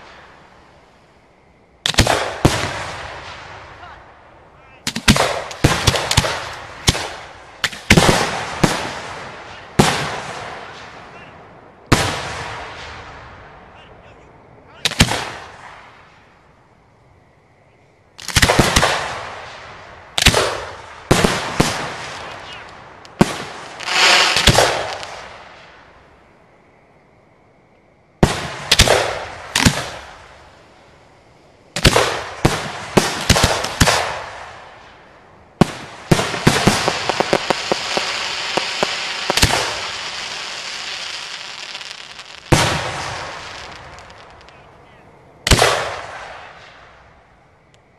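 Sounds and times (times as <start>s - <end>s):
fireworks crackling: 0.0s - 1.2s, 1.8s - 11.3s, 18.2s - 26.1s, 28.2s - 47.2s
fireworks bangs: 1.8s - 13.6s, 14.8s - 16.3s, 18.2s - 26.1s, 28.2s - 30.6s, 31.7s - 47.2s.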